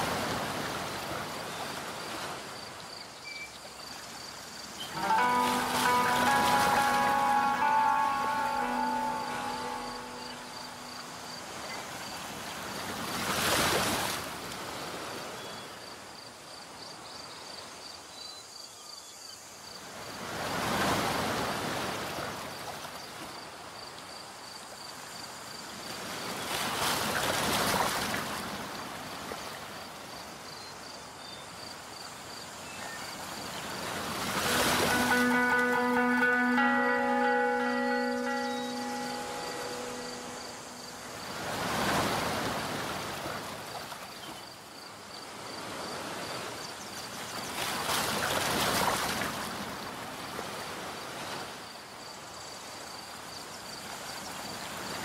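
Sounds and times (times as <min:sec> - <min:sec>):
waves washing in: 0:00.0 - 0:02.6, 0:04.9 - 0:15.4, 0:33.4 - 0:44.2
music track: 0:04.9 - 0:11.3, 0:34.7 - 0:41.5.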